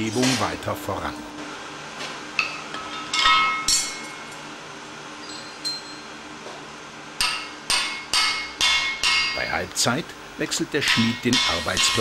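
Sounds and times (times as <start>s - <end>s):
hammer on anvil: 2.4s - 4.1s, 7.2s - 9.5s, 10.8s - 12.0s.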